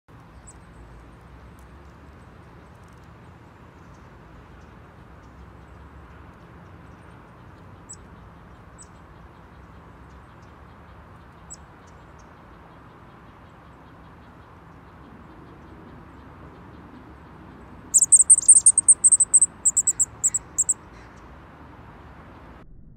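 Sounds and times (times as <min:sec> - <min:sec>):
outdoor background hiss and rumble: 0:00.1 - 0:22.9
high-pitched bird calls: 0:17.9 - 0:21.1.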